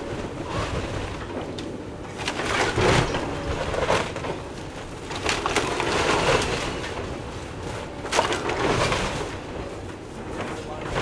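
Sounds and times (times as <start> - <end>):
low machine rumble: 0.0 - 11.0
timber splintering and cracking: 2.1 - 7.0, 8.0 - 9.4
falling debris crashes: 2.1 - 7.3, 8.0 - 9.7.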